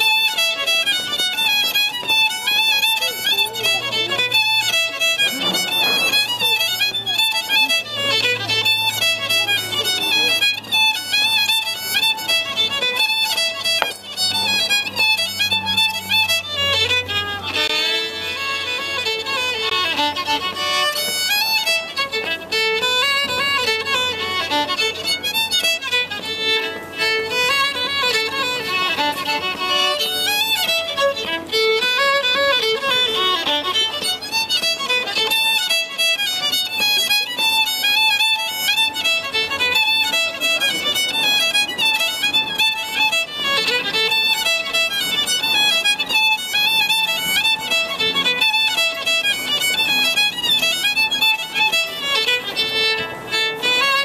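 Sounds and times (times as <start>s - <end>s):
fiddle playing quick tune: 0.0s - 54.0s
low held drone note: 3.0s - 10.7s.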